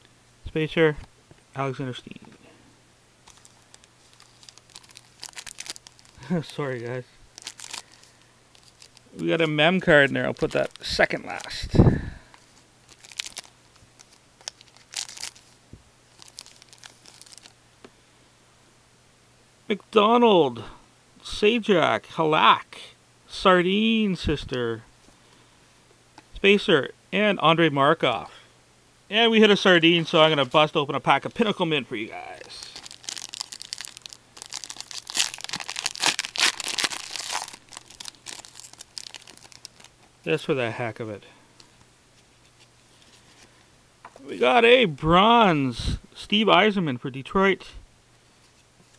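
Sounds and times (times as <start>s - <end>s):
card wrapper crinkling: 3.2s - 11.6s, 12.9s - 17.6s, 30.1s - 40.1s.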